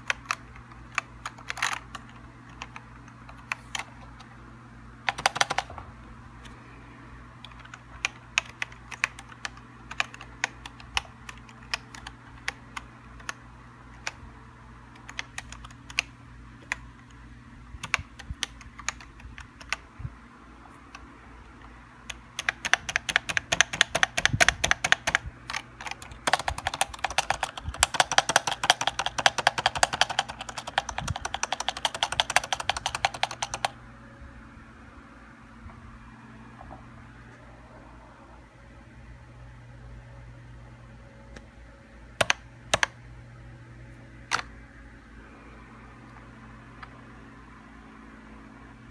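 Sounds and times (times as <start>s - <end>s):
keyboard typing: 0.0s - 4.4s, 5.0s - 5.8s, 7.4s - 14.2s, 14.9s - 17.2s, 17.8s - 19.8s, 20.9s - 33.8s, 42.2s - 43.0s.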